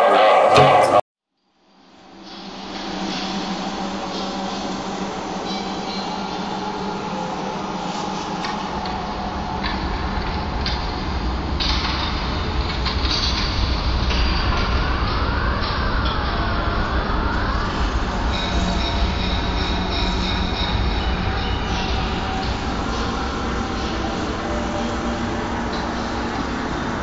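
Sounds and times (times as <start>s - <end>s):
train-like rumble and clatter: 2.1s - 27.0s.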